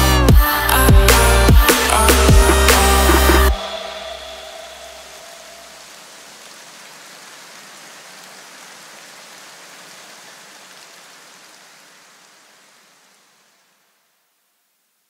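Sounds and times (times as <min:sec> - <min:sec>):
electronic background track: 0:00.0 - 0:05.8.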